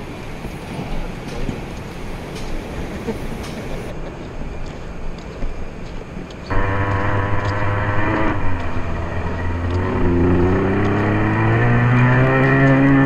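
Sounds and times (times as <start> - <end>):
model truck engine running: 6.5 - 11.0
rushing noise: 6.5 - 13.0.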